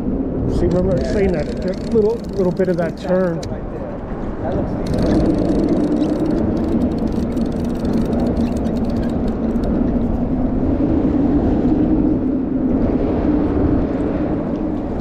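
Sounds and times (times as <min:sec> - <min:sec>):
road traffic drone: 0:00.0 - 0:15.0.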